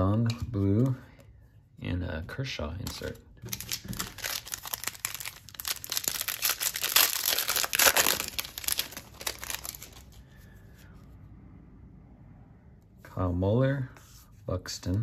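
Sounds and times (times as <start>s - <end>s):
foil wrapper crinkling and tearing: 3.5s - 10.2s.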